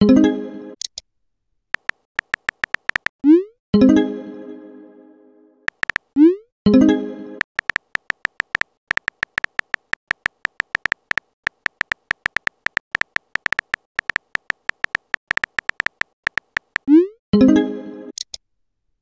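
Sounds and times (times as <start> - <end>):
keyboard beep-clicks: 1.8 - 3.2, 5.7 - 6.1, 7.4 - 16.9.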